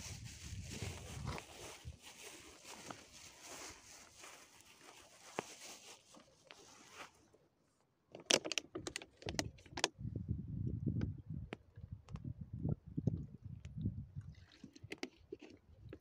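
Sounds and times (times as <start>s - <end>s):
plastic bag rustling: 0.0s - 7.2s.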